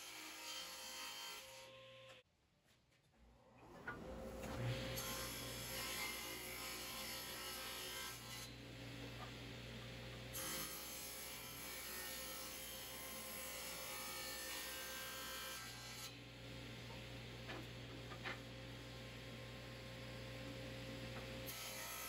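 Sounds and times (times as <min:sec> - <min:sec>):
saw cutting wooden board: 0:04.5 - 0:08.6, 0:10.3 - 0:16.2, 0:21.5 - 0:22.0.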